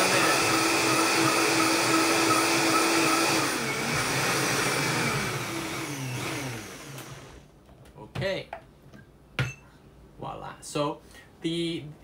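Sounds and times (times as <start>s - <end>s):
blender motor whining: 0.0s - 7.4s.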